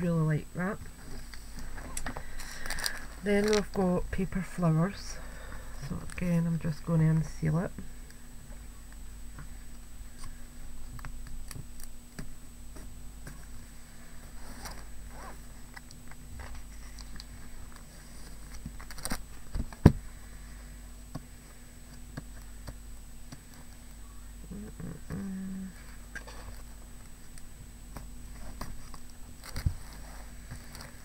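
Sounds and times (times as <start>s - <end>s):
wrapper crackling: 2.3s - 3.8s.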